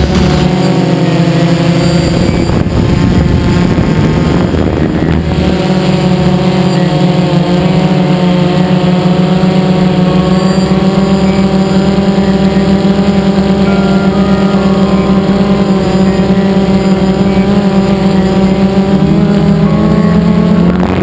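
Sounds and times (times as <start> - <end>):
aircraft motors and propellers: 0.0 - 21.0.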